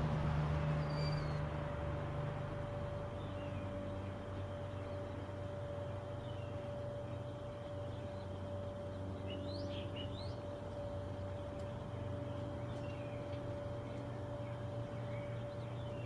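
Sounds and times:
steady background hum: 0.0 - 16.0
birds chirping: 0.6 - 1.5, 2.7 - 16.0.

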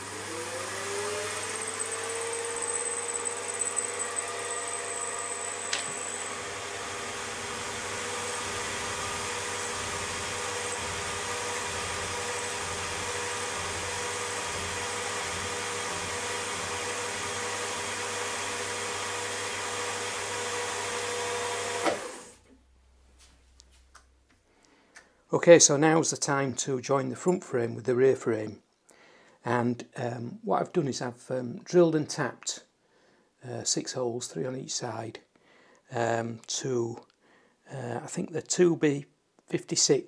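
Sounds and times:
spindle whine: 0.0 - 13.2
milling machine cutting metal: 0.0 - 19.6.

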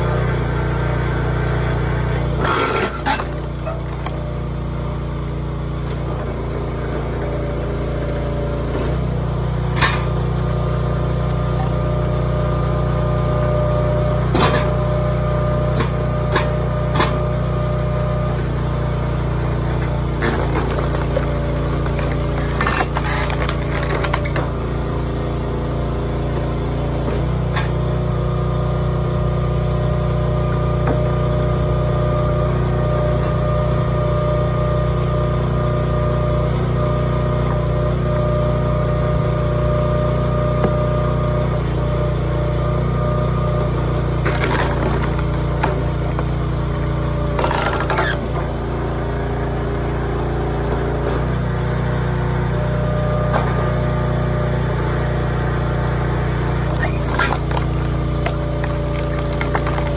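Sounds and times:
engine running: 0.0 - 59.9
logs cracking apart: 2.2 - 7.1, 19.8 - 24.6, 44.0 - 48.6, 56.6 - 59.9.

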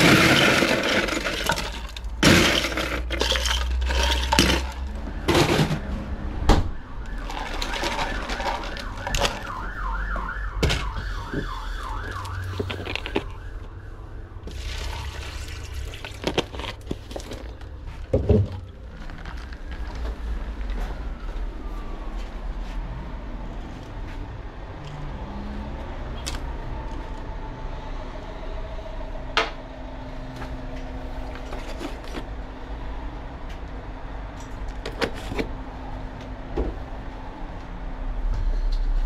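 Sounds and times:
ice cubes clattering into cup: 0.0 - 5.7, 7.2 - 9.5, 14.5 - 17.5
water pouring from plastic bottle: 7.2 - 9.5, 14.5 - 17.6.

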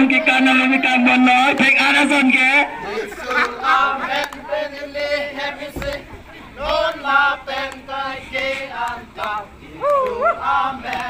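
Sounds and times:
group of voices chanting: 2.6 - 11.0.

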